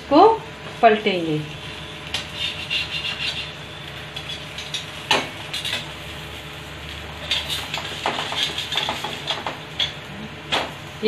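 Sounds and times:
metal skimmer scraping on griddle: 0:02.1 - 0:10.0.

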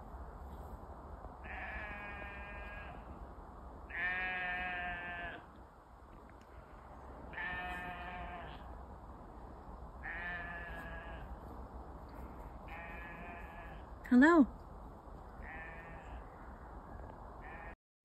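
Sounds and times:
sheep bleating: 0:01.4 - 0:03.1, 0:03.9 - 0:05.5, 0:07.3 - 0:08.7, 0:10.0 - 0:11.4, 0:12.6 - 0:13.9, 0:15.4 - 0:16.3, 0:17.4 - 0:17.8.

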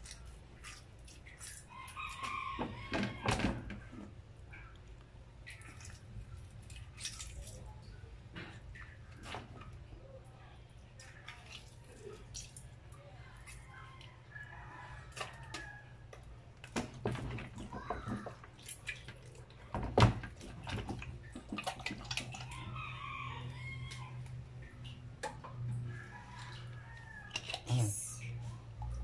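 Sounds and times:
wet squelching and dripping: 0:00.0 - 0:29.0
rooster crowing: 0:01.7 - 0:03.3, 0:22.4 - 0:24.3, 0:25.8 - 0:27.5.

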